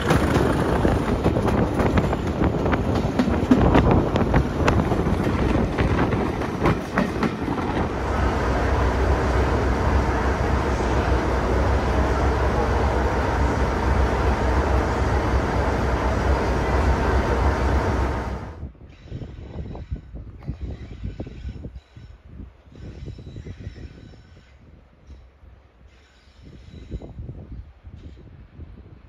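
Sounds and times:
train wheels clicking over rail joints: 0:00.0 - 0:08.1
diesel locomotive idling: 0:00.0 - 0:18.6
wind rush at train window: 0:00.0 - 0:29.0.

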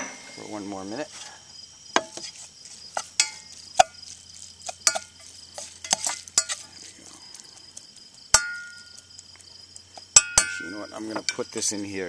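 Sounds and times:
insect chirring: 0:00.0 - 0:12.0
metal utensils clinking on cookware: 0:03.0 - 0:03.9, 0:04.8 - 0:06.7, 0:10.2 - 0:11.6.

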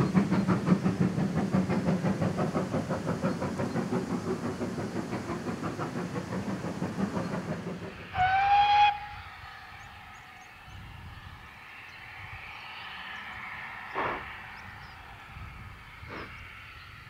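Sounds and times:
steam locomotive exhaust beats: 0:00.0 - 0:17.0
steam whistle blast: 0:08.1 - 0:09.3.

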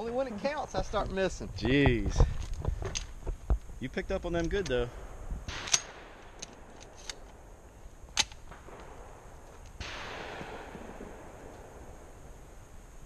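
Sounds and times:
shotgun clicks and snaps: 0:05.5 - 0:07.4, 0:08.1 - 0:09.8
muffled distant shotgun shot: 0:08.3 - 0:12.1.

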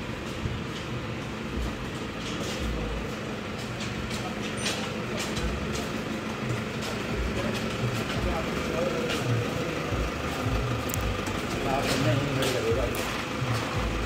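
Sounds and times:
footsteps on brick paving: 0:00.0 - 0:14.0
hum of vehicles and machinery: 0:00.0 - 0:14.0.

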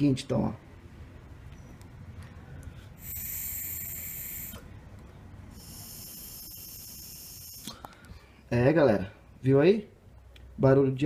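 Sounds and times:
air hissing through valve: 0:03.0 - 0:04.7, 0:05.5 - 0:07.8.

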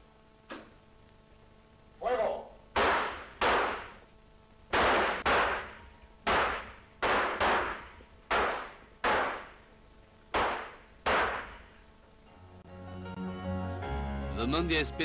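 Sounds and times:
pistol shots: 0:02.7 - 0:04.0, 0:04.7 - 0:09.7, 0:10.3 - 0:11.7.

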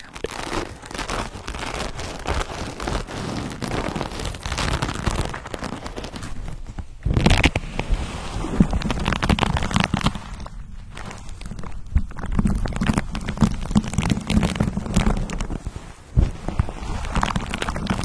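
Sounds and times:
fluffy pad rubbing microphone: 0:00.0 - 0:18.0.

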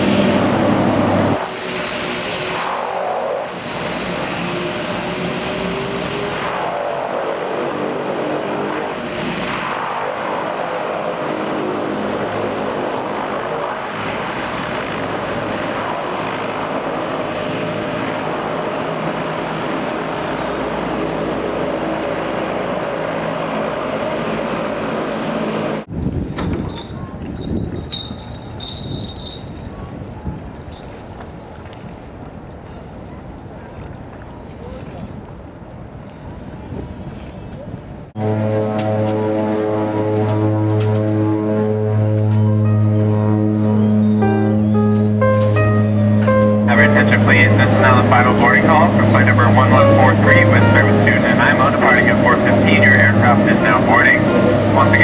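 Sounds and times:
turboprop propeller drone: 0:00.0 - 0:29.7, 0:46.2 - 0:55.0.

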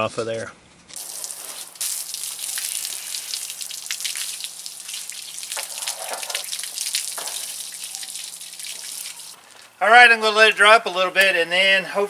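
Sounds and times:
water spattering onto driveway: 0:00.9 - 0:09.7.

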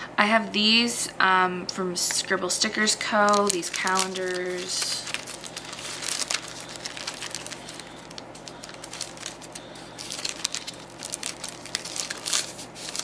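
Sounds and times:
paper and plastic sleeves rustling: 0:02.7 - 0:13.0.

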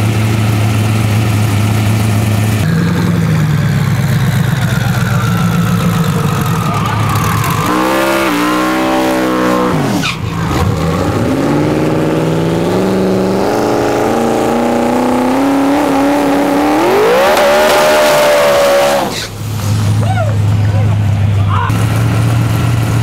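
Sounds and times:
truck engine revving hard: 0:00.0 - 0:23.0
tyres squealing: 0:05.4 - 0:10.8, 0:17.1 - 0:19.4.

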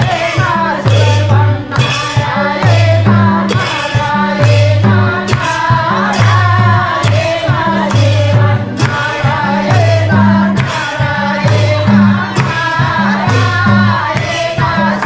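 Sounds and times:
song with singing over a beat: 0:00.0 - 0:15.0.

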